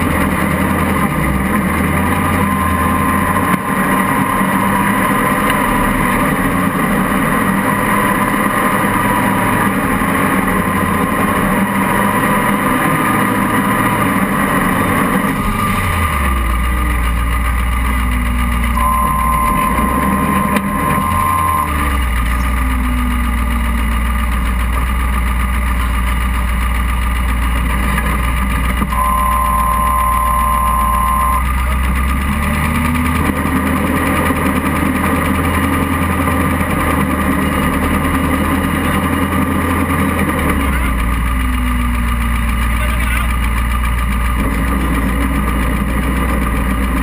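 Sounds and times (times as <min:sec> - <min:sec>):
buggy engine revving: 0:00.0 - 0:47.0
steady high whine: 0:00.6 - 0:24.5, 0:28.8 - 0:31.9.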